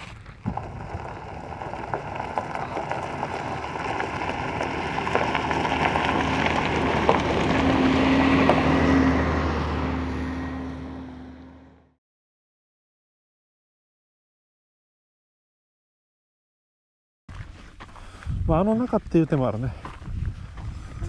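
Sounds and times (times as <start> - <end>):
bus passing on gravel road: 0.0 - 12.0.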